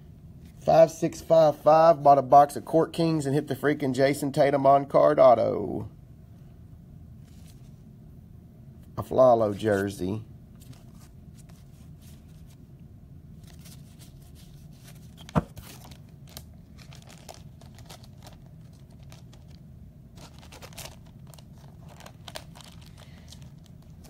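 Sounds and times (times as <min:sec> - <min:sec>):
faint low hum: 0:00.0 - 0:24.0
cards and plastic sleeves handled: 0:07.2 - 0:07.8, 0:09.4 - 0:12.7, 0:13.4 - 0:24.0.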